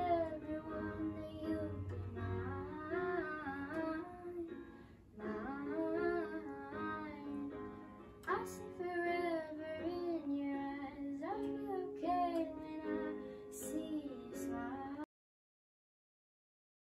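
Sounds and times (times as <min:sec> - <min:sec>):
electronic keyboard chords: 0:00.0 - 0:15.0
person singing slow melody: 0:00.0 - 0:15.1.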